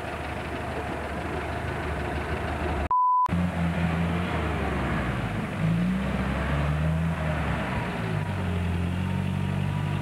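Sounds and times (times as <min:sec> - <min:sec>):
off-road engines running: 0:00.0 - 0:10.0
short steady beep: 0:02.9 - 0:03.3.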